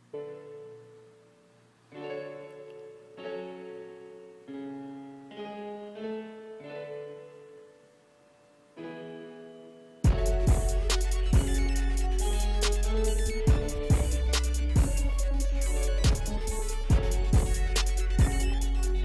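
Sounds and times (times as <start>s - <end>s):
soft piano chords: 0.0s - 19.0s
drum beat with deep bass: 10.1s - 19.0s.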